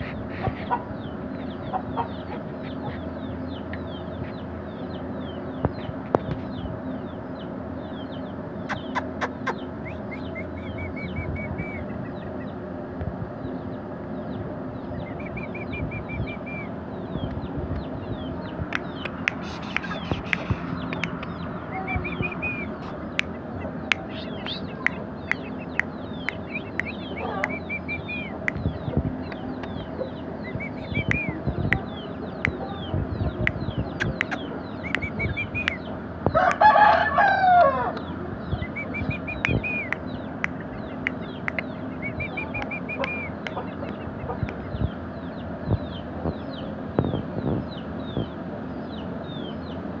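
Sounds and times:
short high bird calls: 0:08.6 - 0:12.5, 0:18.8 - 0:31.9
rooster crowing: 0:36.4 - 0:38.0.

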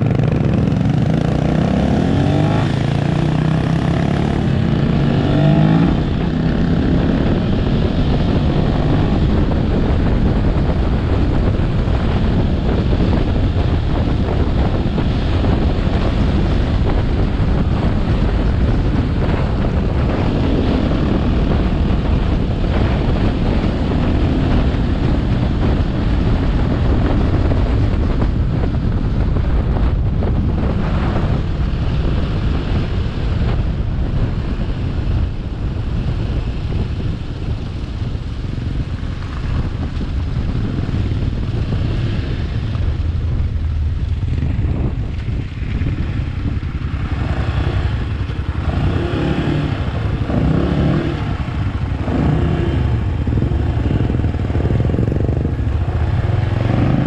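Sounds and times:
vehicle engine running: 0:00.0 - 0:57.0
wind rumble on microphone: 0:00.0 - 0:57.0.

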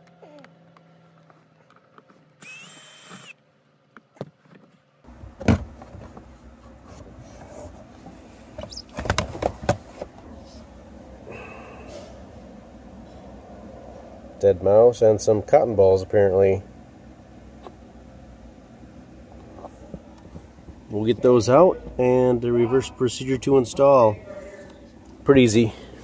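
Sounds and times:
cordless drill whining: 0:02.4 - 0:03.4
plastic knocks and rattles: 0:08.6 - 0:09.8.

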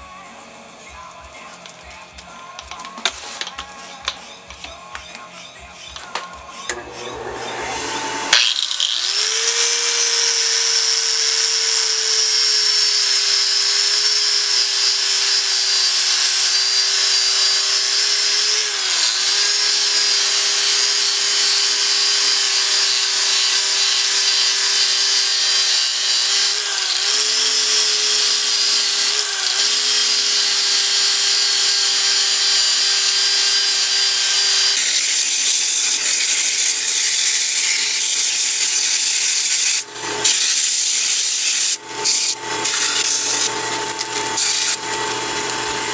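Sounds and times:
disc sander whining: 0:00.9 - 0:45.9
sandpaper rubbing spinning wood: 0:14.2 - 0:43.5.

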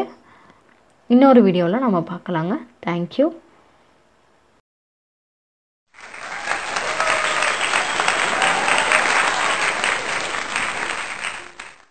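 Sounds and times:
crowd applauding: 0:05.9 - 0:11.9.

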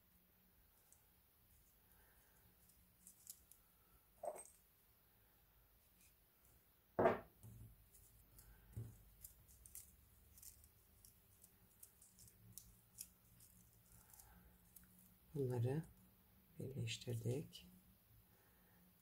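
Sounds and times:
paper crinkling and ticking: 0:00.8 - 0:03.6, 0:07.8 - 0:15.2.

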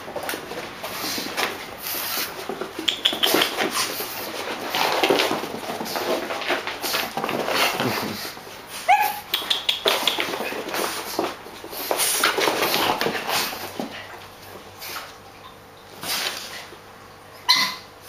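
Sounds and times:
dogs scuffling on carpet: 0:00.0 - 0:09.1, 0:09.8 - 0:15.3, 0:16.0 - 0:16.9
dogs vocalising: 0:01.1 - 0:05.2, 0:06.9 - 0:11.3, 0:17.4 - 0:18.0
dog high cry: 0:08.8 - 0:09.3, 0:17.5 - 0:17.9.

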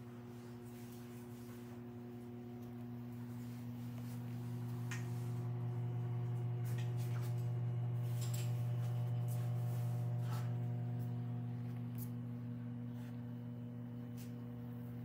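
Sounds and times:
turntable motor humming: 0:01.8 - 0:15.0.

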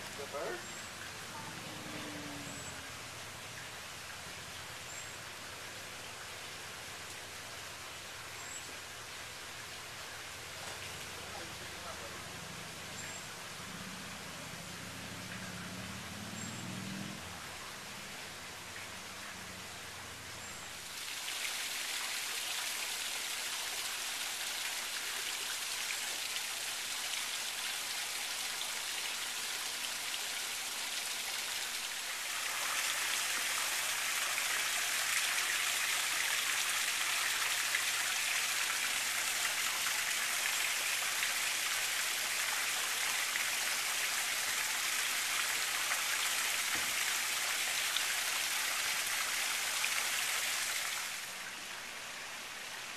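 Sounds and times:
water splashing into a pool: 0:20.8 - 0:51.6.

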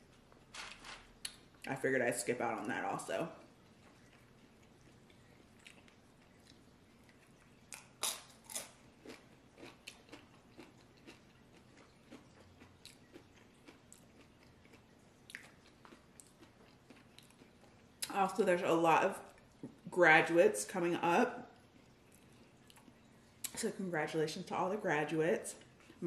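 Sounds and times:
person crunching chips: 0:03.8 - 0:17.5.

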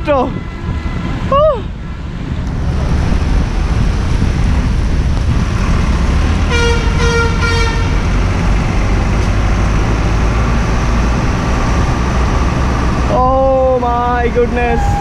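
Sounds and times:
wind on microphone: 0:00.0 - 0:15.0
rain noise: 0:02.4 - 0:15.0
vehicle horn honking: 0:06.5 - 0:08.0.

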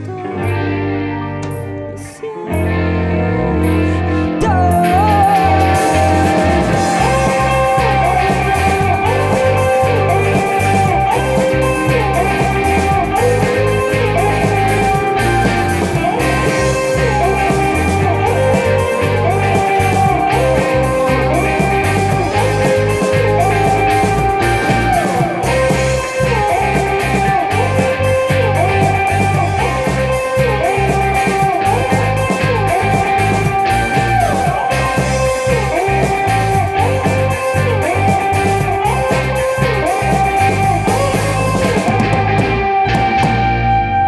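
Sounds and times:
live rock band playing: 0:00.0 - 0:44.0
sliding electric guitar lead line: 0:00.0 - 0:44.0.

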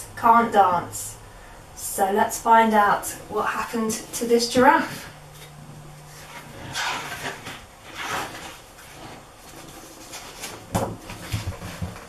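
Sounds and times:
low steady hum: 0:00.0 - 0:12.0
book pages turning: 0:05.4 - 0:12.0.

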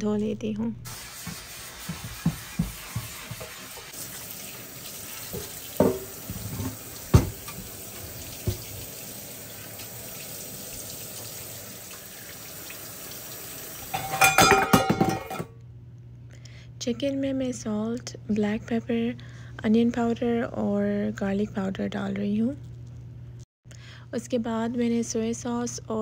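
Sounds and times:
tap running into sink: 0:00.9 - 0:04.2, 0:05.0 - 0:09.0
knocks against sink: 0:05.3 - 0:07.6, 0:08.4 - 0:08.8
clattering with ringing clinks: 0:13.9 - 0:15.5.

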